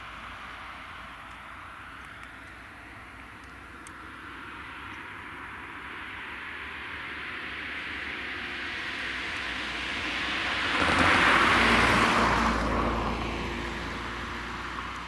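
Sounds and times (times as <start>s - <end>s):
car passing by: 4.4s - 15.0s.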